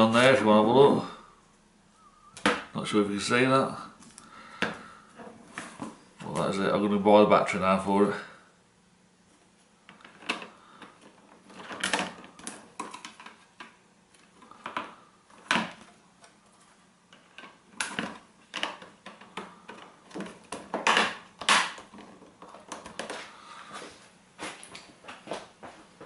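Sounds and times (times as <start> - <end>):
plastic clips snapping: 17.1 - 23.2.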